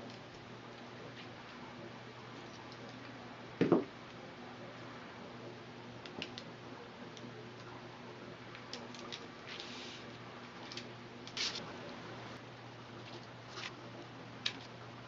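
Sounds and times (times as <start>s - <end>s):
steady low hum: 0.0s - 15.0s
dull knock: 3.6s - 3.9s
light ticks and clicks of straw: 6.0s - 6.5s, 8.5s - 11.6s.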